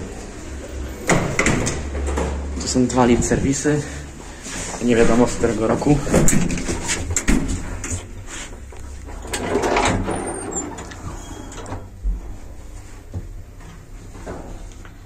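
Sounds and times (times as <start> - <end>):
elevator doors sliding closed: 9.2 - 12.4.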